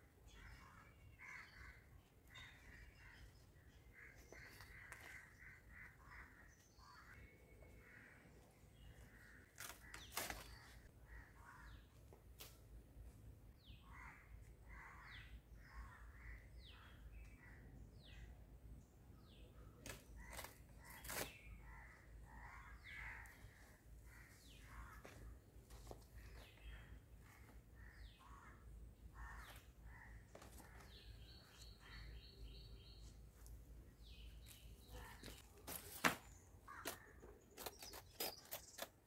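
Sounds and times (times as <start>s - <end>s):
small birds chirping: 19.3s - 39.0s
crows cawing: 36.7s - 37.2s.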